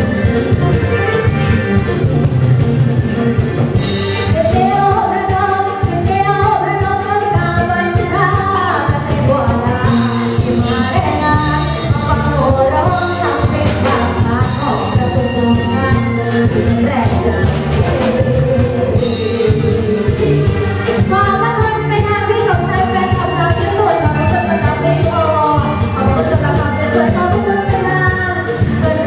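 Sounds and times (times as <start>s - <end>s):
live band playing: 0.0s - 29.0s
woman singing into microphone: 4.2s - 29.0s.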